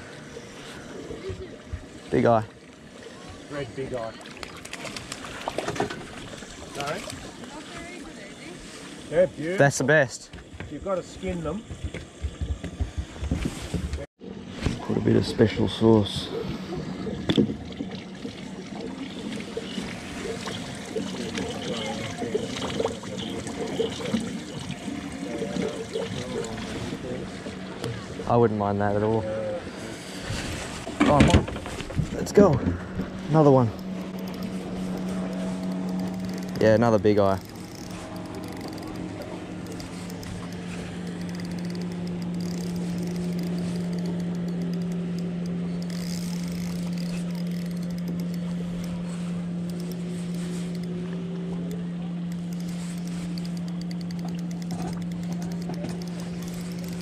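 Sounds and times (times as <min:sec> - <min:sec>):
boat hum: 0:00.0 - 0:57.0
water trickling and gurgling: 0:14.3 - 0:30.2
spinning reel winding: 0:34.0 - 0:49.0, 0:52.3 - 0:57.0.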